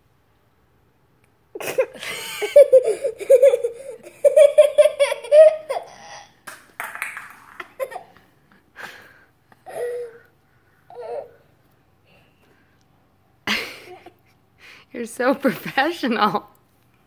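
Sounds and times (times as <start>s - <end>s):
child laughing: 1.6s - 6.4s, 7.5s - 8.2s.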